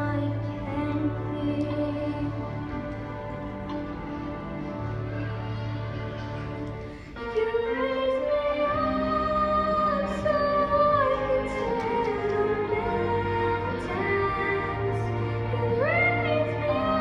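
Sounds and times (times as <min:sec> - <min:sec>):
instrumental backing music: 0:00.0 - 0:17.0.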